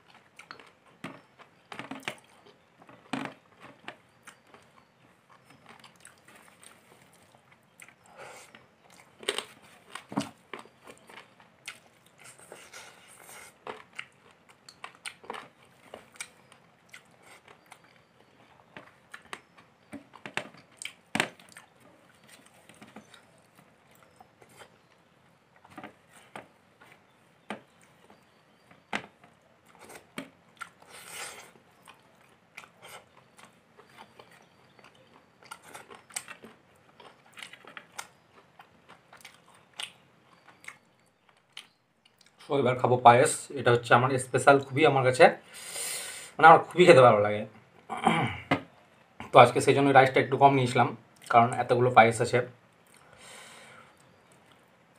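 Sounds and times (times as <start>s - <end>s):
sharp clicks and crunches: 0.0s - 25.0s, 25.6s - 42.5s
chewing and biting: 0.0s - 42.5s.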